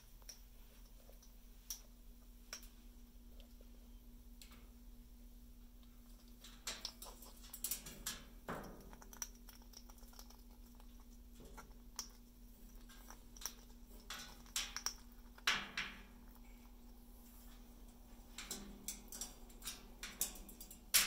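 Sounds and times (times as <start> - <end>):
parrot claws and beak clicking: 5.8 - 16.5.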